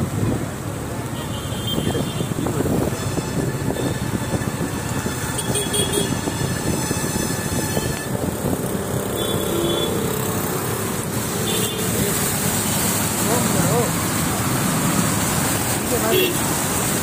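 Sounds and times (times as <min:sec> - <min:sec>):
floodwater rushing: 0:07.4 - 0:17.0.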